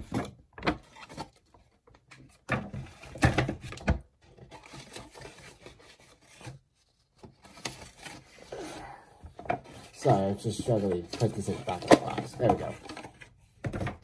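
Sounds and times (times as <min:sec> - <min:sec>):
paper scraping and rustling: 0:04.3 - 0:08.7, 0:09.5 - 0:13.4.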